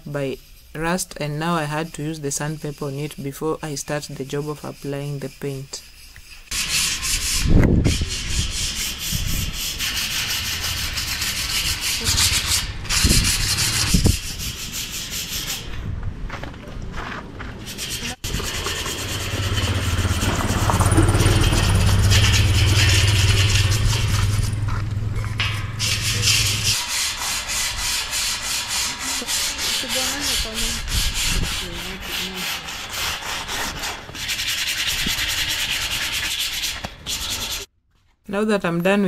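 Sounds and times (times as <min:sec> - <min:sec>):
sandpaper rubbing on metal: 0:00.4 - 0:15.8, 0:17.6 - 0:37.7
low hum: 0:18.8 - 0:26.8.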